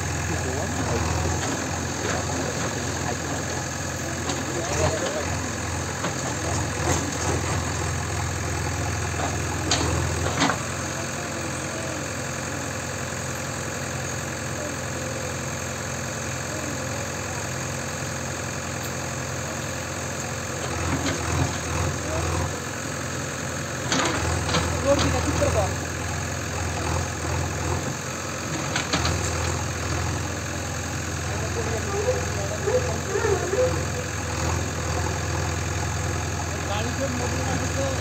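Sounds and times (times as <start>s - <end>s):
diesel engine running: 0.0s - 38.0s.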